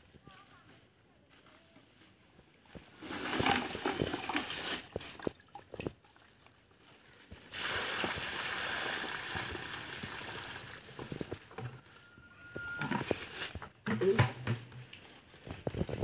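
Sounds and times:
water splashing and sloshing: 0:03.0 - 0:11.6.

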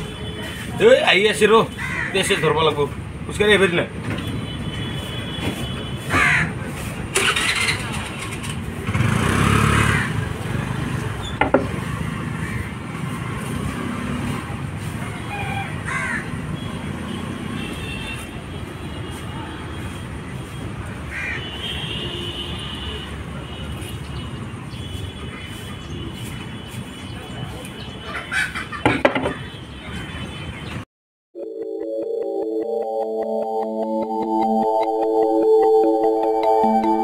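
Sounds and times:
traffic rumble: 0:00.0 - 0:30.9
loud vehicle passing: 0:06.0 - 0:17.6.

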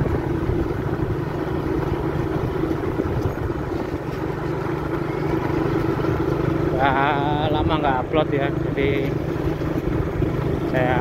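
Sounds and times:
wind on microphone: 0:00.0 - 0:04.4
motorcycle engine running: 0:00.0 - 0:11.0.

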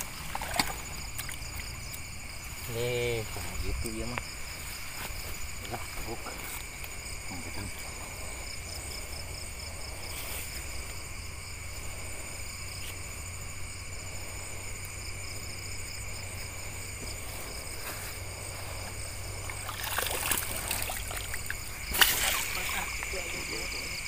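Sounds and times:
night insects trilling: 0:00.0 - 0:24.0
river flowing: 0:18.1 - 0:23.5.

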